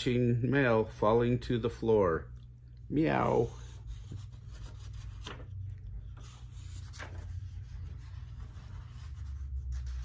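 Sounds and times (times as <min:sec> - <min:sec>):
low steady hum: 0:00.0 - 0:10.0
book pages rustling: 0:03.2 - 0:10.0.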